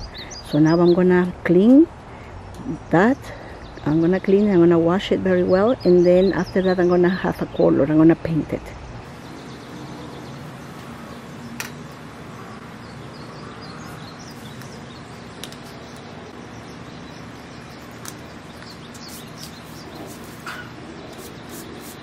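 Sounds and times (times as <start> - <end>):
faint bird chirps: 12.4 - 22.0.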